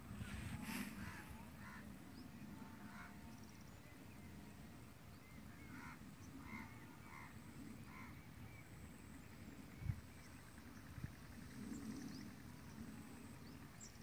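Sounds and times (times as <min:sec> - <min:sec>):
faint bird calls: 0:00.1 - 0:03.9, 0:05.2 - 0:08.7.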